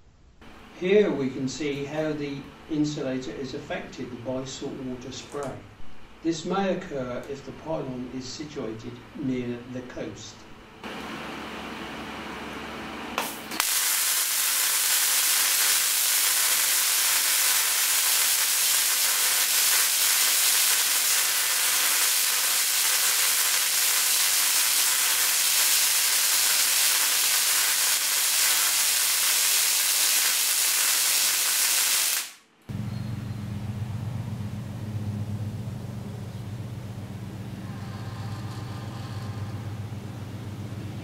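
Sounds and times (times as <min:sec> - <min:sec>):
high-voltage sparks crackling: 0:13.2 - 0:32.4.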